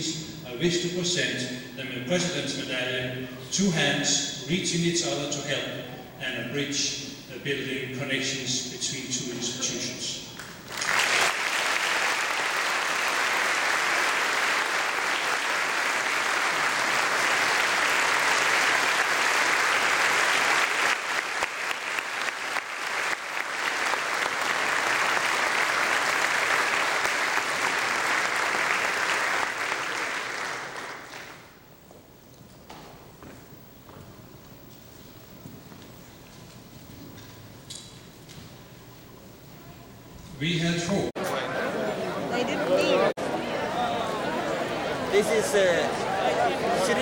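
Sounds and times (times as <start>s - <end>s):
audience applauding: 10.4s - 31.6s, 41.3s - 47.0s.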